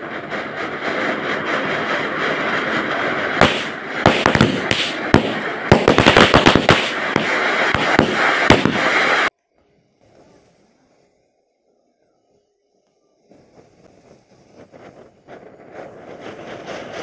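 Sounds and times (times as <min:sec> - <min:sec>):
firecrackers banging: 0:00.0 - 0:09.3, 0:13.3 - 0:17.0
fountain firework hissing: 0:00.0 - 0:17.0.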